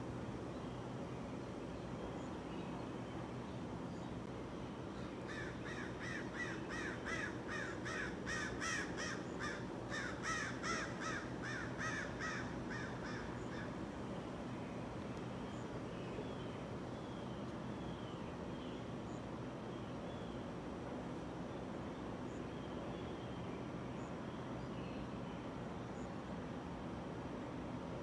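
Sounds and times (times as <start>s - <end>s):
harsh crow-like bird calls: 5.2s - 13.9s.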